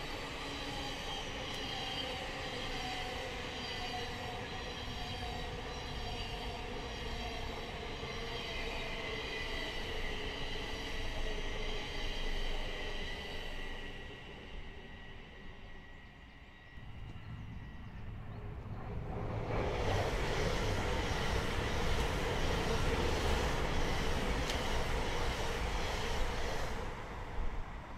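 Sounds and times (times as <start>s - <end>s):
train rumble: 0.0s - 27.9s.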